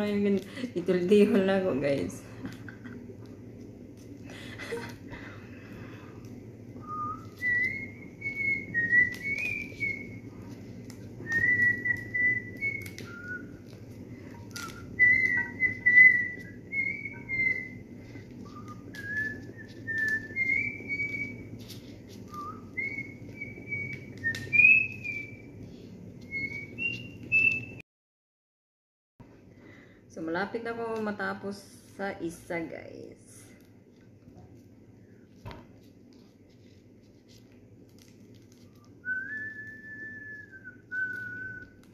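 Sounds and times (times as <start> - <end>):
person whistling a tune: 6.8 - 10.3, 11.2 - 21.6, 22.3 - 25.5, 26.2 - 27.8, 39.0 - 41.9.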